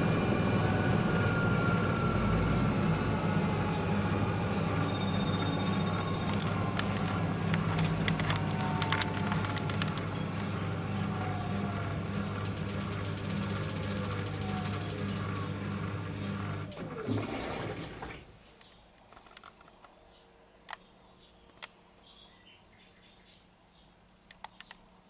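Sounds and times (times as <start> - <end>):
drum motor winding down whine: 0.0 - 18.3
washing machine humming and ticking: 0.0 - 18.4
sharp clicks: 4.9 - 10.6, 12.2 - 15.6, 24.3 - 24.9.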